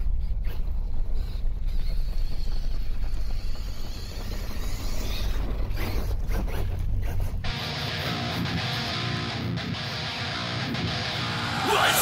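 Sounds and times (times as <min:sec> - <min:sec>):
toy truck motor whine: 0:00.0 - 0:07.4.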